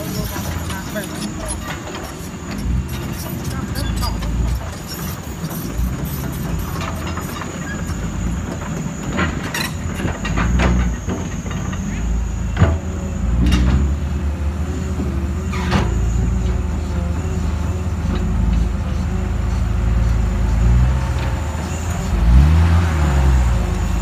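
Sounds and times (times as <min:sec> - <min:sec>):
sharp clanks and rattles: 0:00.0 - 0:13.9
diesel truck engines rumbling: 0:00.0 - 0:24.0.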